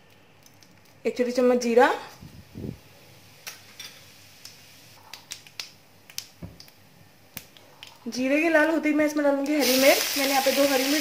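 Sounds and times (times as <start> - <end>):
seeds crackling in hot oil: 9.4 - 11.0.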